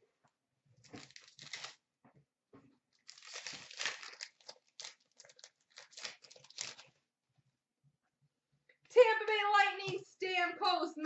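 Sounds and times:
wrapper crinkling: 0:00.9 - 0:01.8, 0:02.9 - 0:07.0
card pack wrapper tearing: 0:01.0 - 0:01.8, 0:03.0 - 0:06.9.

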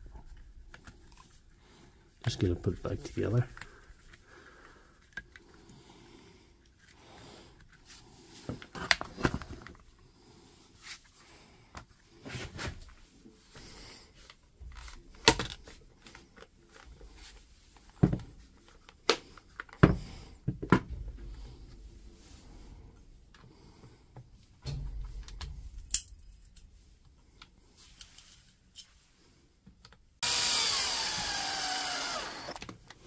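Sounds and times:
plastic parts clicking and knocking: 0:14.6 - 0:17.0, 0:17.8 - 0:21.2.

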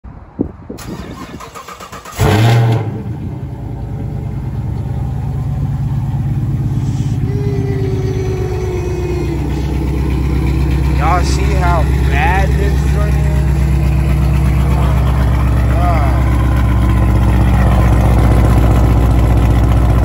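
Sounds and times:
car engine starter cranking: 0:00.8 - 0:02.8
engine revving then idling: 0:01.7 - 0:20.0.

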